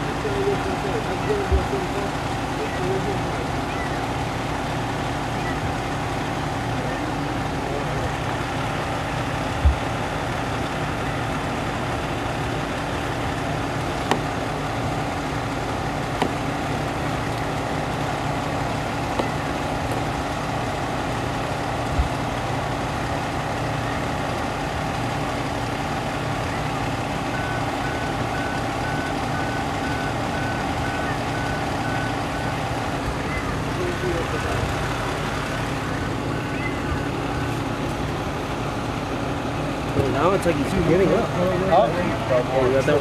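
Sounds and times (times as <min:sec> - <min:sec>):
truck engine idling: 0:00.0 - 0:43.0
knocks and thumps: 0:09.6 - 0:09.9.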